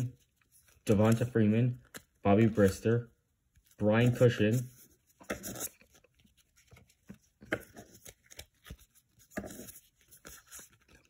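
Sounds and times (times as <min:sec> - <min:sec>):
cards sliding against cards: 0:04.0 - 0:11.0.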